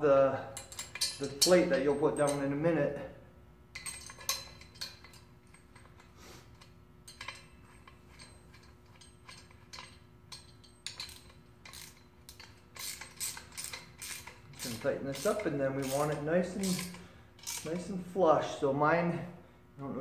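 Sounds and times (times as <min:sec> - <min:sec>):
wrenches clicking on metal bolt: 0:00.6 - 0:02.5, 0:03.8 - 0:06.0, 0:06.6 - 0:17.9.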